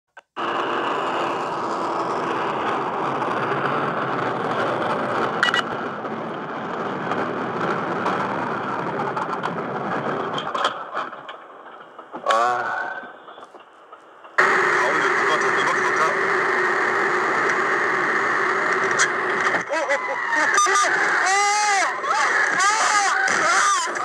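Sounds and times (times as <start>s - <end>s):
high electronic beep: 5.4s - 5.7s.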